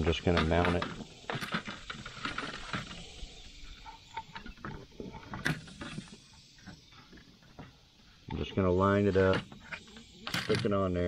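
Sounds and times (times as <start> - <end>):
rustling: 0.0 - 8.2.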